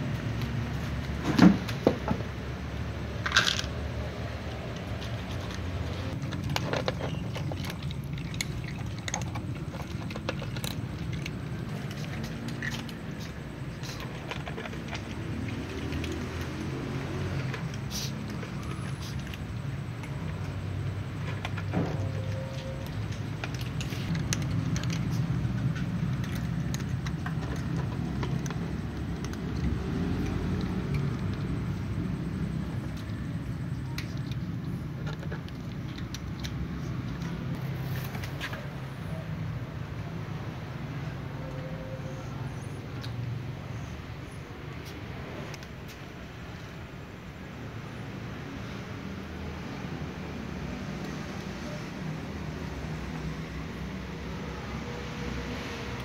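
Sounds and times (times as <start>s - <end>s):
cats crunching dry kibble: 4.6s - 38.8s.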